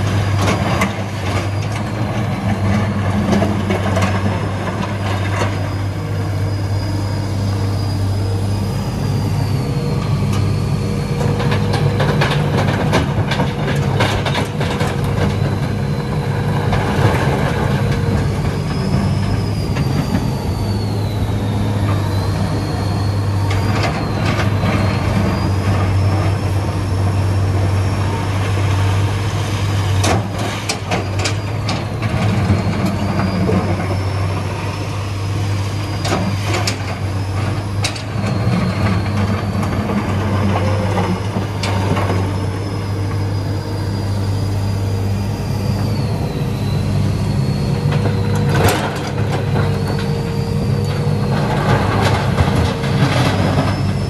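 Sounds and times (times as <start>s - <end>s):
excavator diesel engine running: 0.0s - 54.0s
high mechanical whine: 0.0s - 54.0s.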